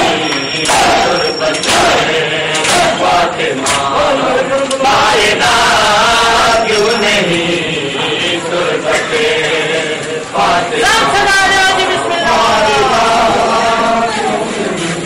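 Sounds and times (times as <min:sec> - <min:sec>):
crowd of men chanting: 0:00.0 - 0:15.0.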